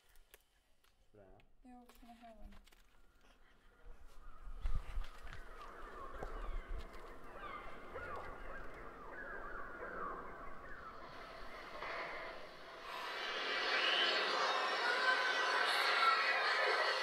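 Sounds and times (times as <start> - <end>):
flock of fowl calling: 5.4 - 12.6.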